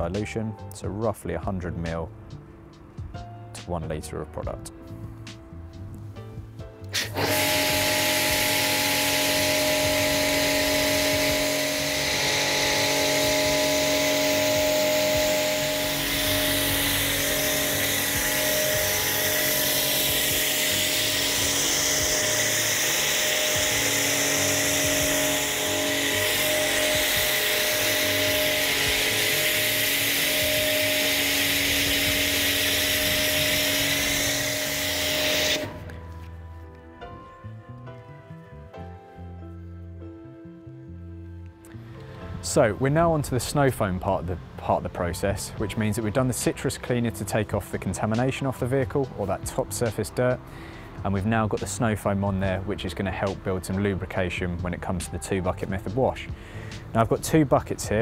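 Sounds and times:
pressure washer motor hum: 0:06.0 - 0:36.3
foam spray hissing: 0:06.9 - 0:36.0.

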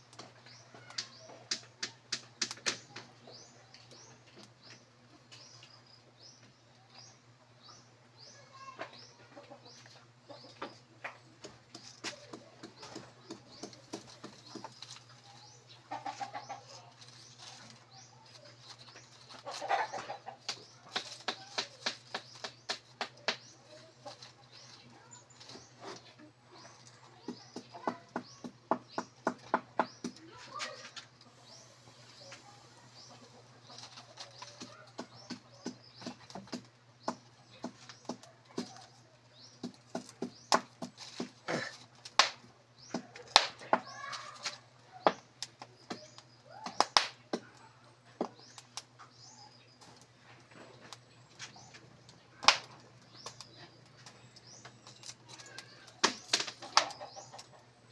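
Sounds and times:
crackling wood fire: 0:00.0 - 0:07.0, 0:10.7 - 0:57.9.

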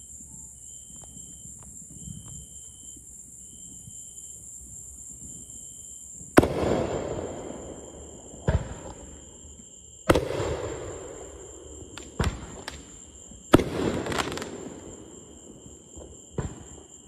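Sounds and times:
fireworks bangs with echo: 0:06.3 - 0:09.4, 0:10.0 - 0:17.0.

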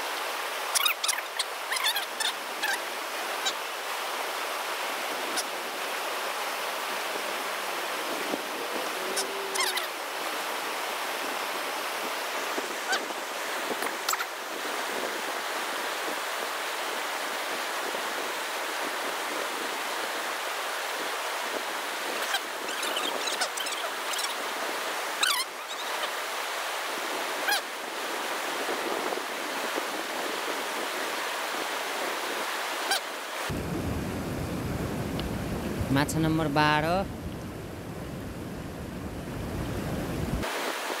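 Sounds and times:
river flowing: 0:00.0 - 0:41.0.

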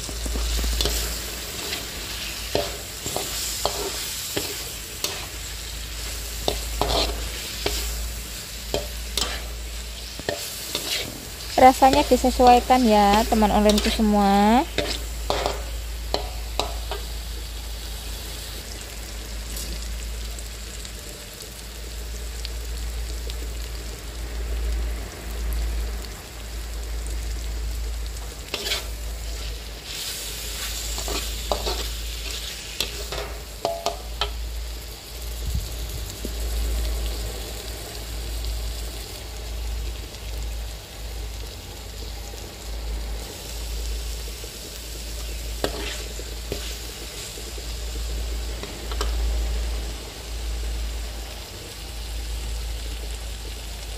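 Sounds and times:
food sizzling in a wok: 0:00.0 - 0:53.9
metal spatula scraping a pan: 0:00.4 - 0:08.0, 0:08.7 - 0:12.5, 0:13.1 - 0:17.0, 0:28.5 - 0:34.4, 0:45.6 - 0:46.8.

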